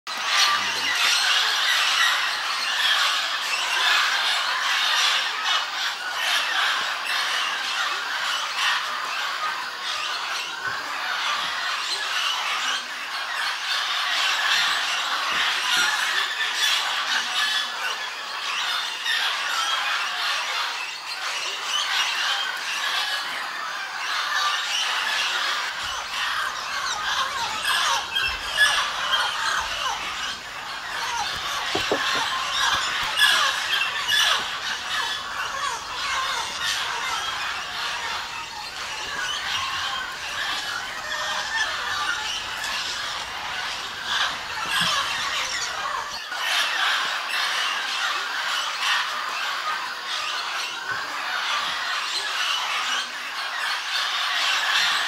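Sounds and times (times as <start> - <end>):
parrots squawking and screeching: 0.1 - 55.0.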